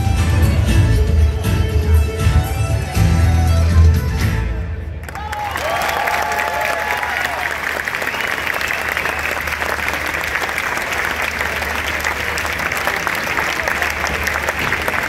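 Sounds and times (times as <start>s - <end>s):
crowd applauding: 5.0s - 15.0s.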